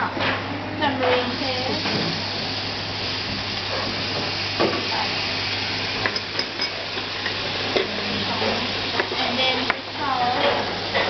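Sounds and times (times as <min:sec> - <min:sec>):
food sizzling in oil: 0:00.8 - 0:11.0.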